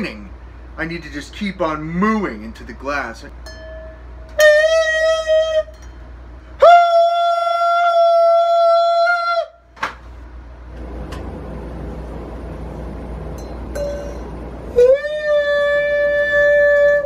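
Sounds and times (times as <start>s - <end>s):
man singing high note: 4.2s - 5.8s, 6.5s - 9.6s, 14.7s - 17.0s.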